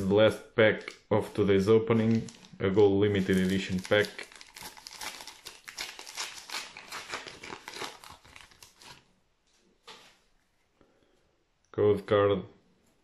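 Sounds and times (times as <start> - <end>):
foil pack tearing and crinkling: 3.2 - 9.0.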